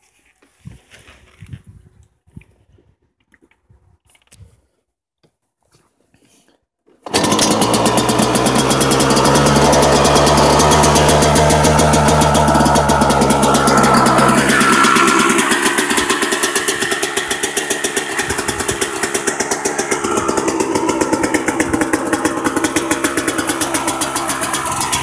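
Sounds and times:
two-stroke engine running: 0:07.0 - 0:25.0.

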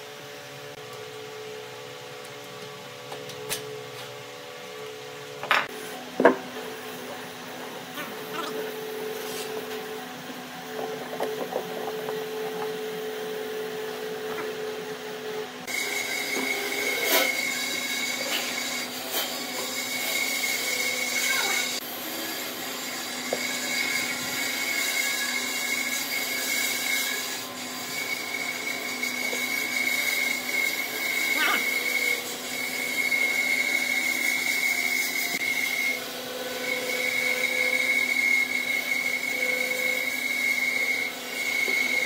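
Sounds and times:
machine hum with high whine: 0:00.0 - 0:42.0.

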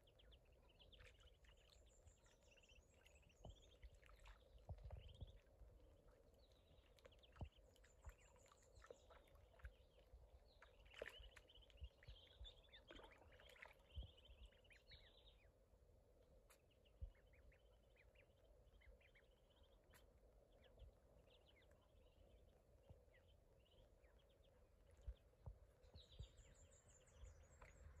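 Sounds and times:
ducklings peeping: 0:00.0 - 0:15.6, 0:16.4 - 0:28.0.

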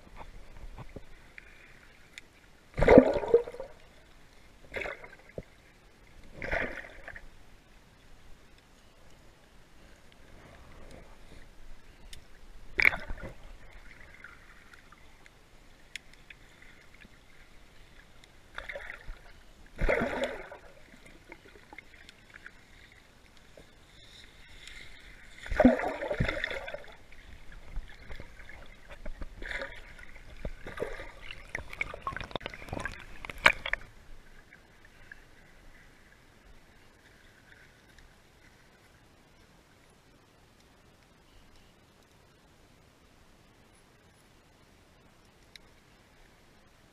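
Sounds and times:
muffled underwater splashing: 0:02.7 - 0:05.5, 0:16.3 - 0:35.6.

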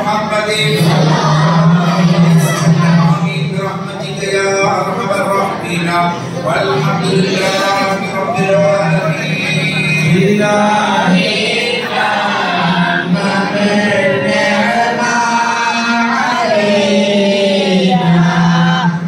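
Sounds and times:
men chanting: 0:00.0 - 0:19.0
low held drone note: 0:00.5 - 0:15.2.

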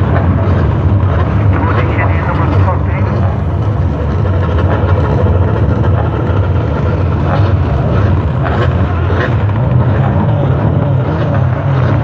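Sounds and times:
stock car engines racing: 0:00.0 - 0:12.0.

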